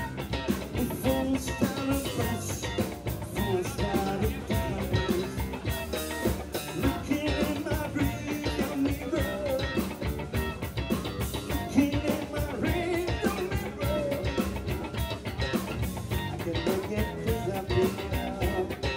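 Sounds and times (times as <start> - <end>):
person singing: 0.0 - 10.5, 11.5 - 15.0, 16.1 - 18.9
drum kit beat: 0.0 - 18.9
electric guitars: 0.0 - 18.9.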